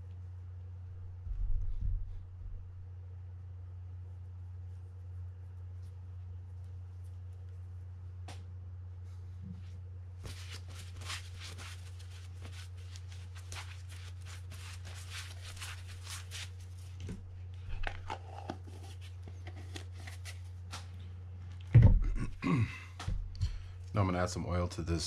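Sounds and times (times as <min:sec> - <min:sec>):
low hum: 0:00.0 - 0:10.2, 0:15.8 - 0:24.0
paper towel crinkling: 0:09.0 - 0:20.9.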